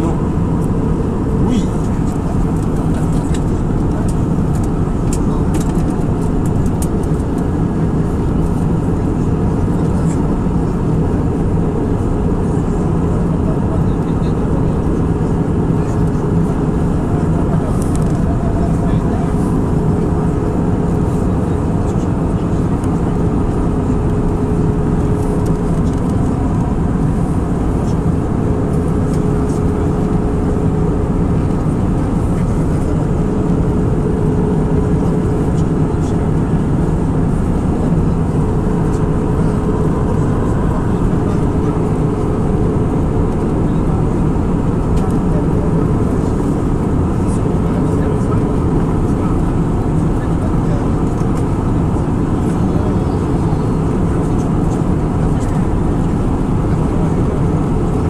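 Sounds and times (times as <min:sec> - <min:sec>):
airplane engines and airflow rushing: 0:00.0 - 0:58.0
steady mid-pitched hum: 0:00.0 - 0:58.0.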